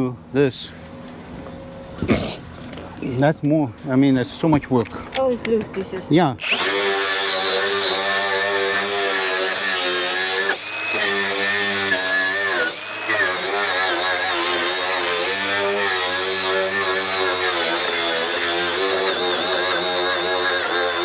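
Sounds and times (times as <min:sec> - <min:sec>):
power tool motor running: 0:06.4 - 0:21.0.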